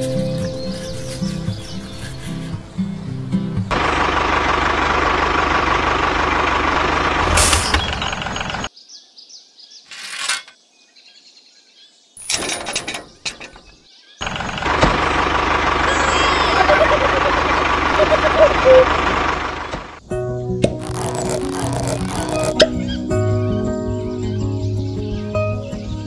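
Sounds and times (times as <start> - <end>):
tractor engine running: 3.6 - 8.7, 12.3 - 20.0, 20.6 - 22.9.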